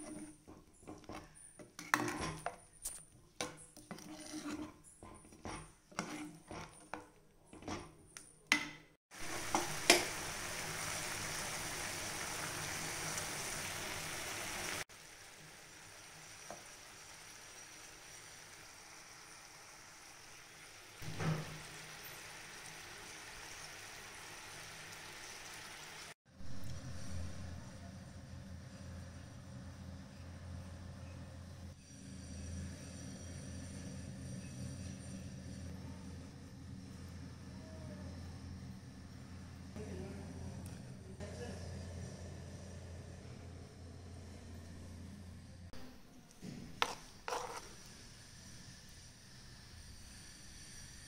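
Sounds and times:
spoon scraping a pan: 0.0s - 10.2s, 46.4s - 48.0s.

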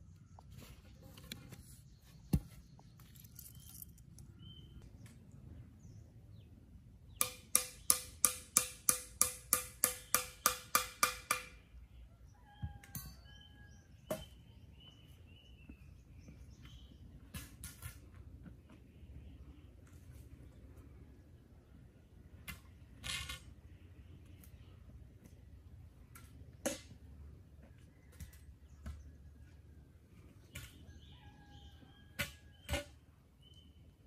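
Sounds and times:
birds chirping: 0.0s - 8.0s, 11.8s - 17.4s
tool beating bamboo poles: 7.2s - 11.6s.

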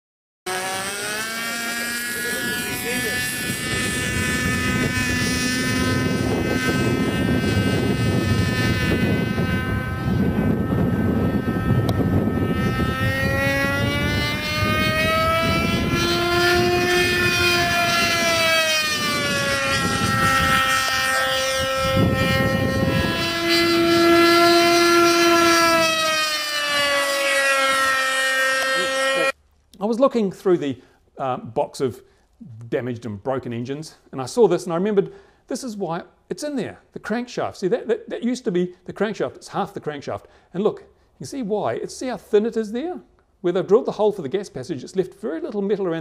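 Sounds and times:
model airplane engine screaming: 0.5s - 29.4s.

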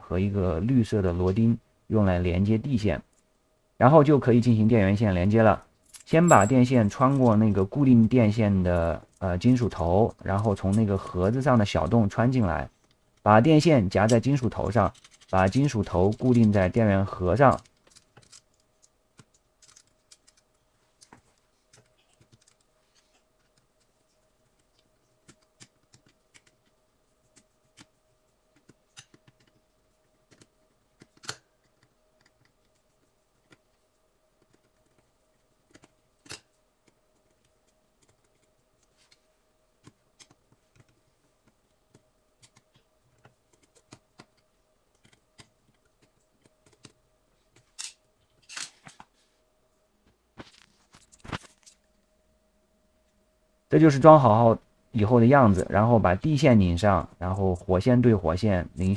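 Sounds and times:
faint steady hum: 0.0s - 58.9s
small metal parts clicking: 14.0s - 21.1s.

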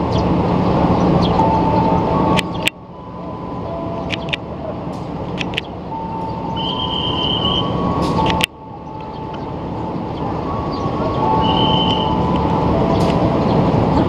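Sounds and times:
electric train approaching: 0.0s - 14.0s
sharp rail clicks: 4.0s - 5.8s
high wheel squeals: 5.9s - 13.7s.

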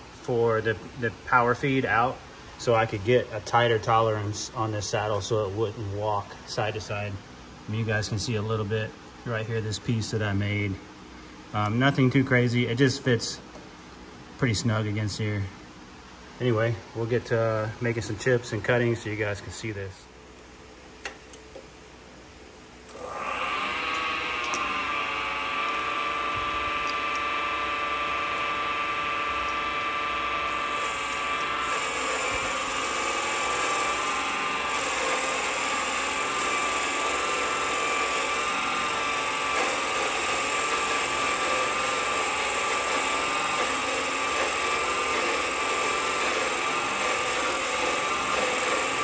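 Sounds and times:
lathe motor whining: 22.8s - 49.0s
cutting tool hissing on metal: 22.9s - 49.0s.

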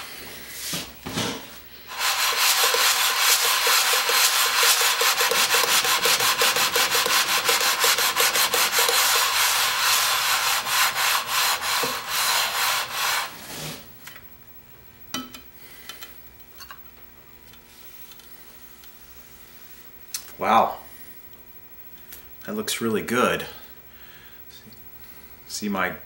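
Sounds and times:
plane scrubbing on sandpaper: 1.9s - 13.8s.

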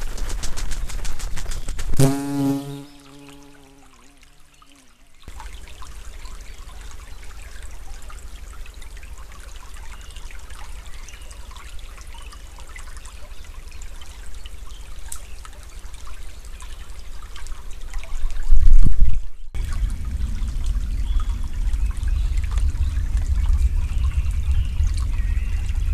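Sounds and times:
stream trickling and babbling: 2.0s - 25.9s
loud low thump-like surge: 19.6s - 25.9s
steady low rumble: 19.6s - 25.9s.

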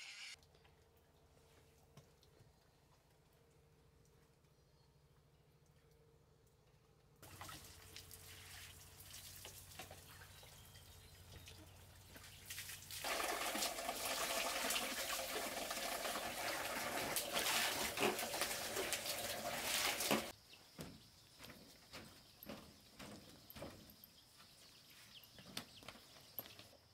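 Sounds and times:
water splashing in plastic basin: 7.2s - 10.3s, 12.2s - 20.3s.

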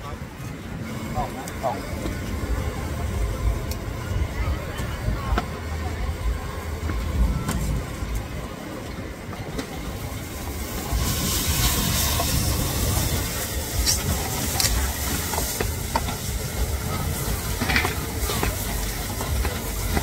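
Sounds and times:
steady low rumble: 0.0s - 20.0s
steak sizzling on grill: 10.0s - 20.0s.

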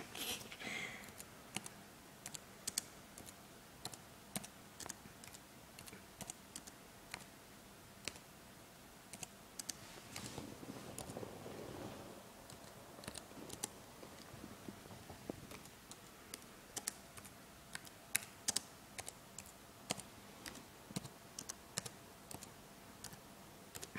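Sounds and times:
computer keyboard typing: 1.0s - 7.3s, 8.0s - 8.3s, 9.1s - 9.8s, 12.4s - 14.3s, 15.5s - 23.9s.

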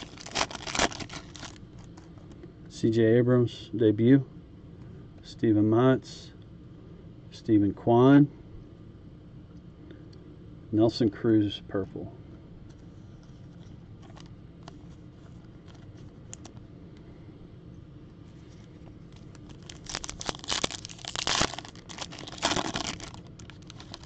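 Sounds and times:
foil wrapper crinkling and tearing: 0.0s - 2.1s, 18.6s - 24.0s.

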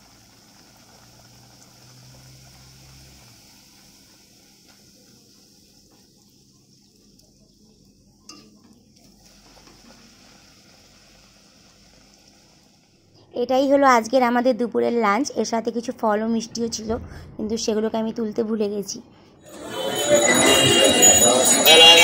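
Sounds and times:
food sizzling in hot oil: 0.0s - 12.9s.

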